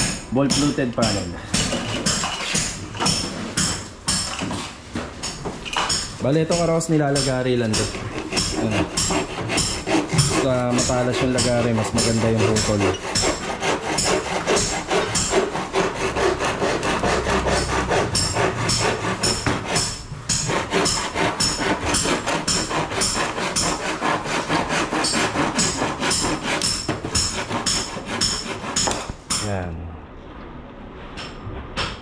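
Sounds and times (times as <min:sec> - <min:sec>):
handsaw cutting plastic panel: 0:06.5 - 0:29.2.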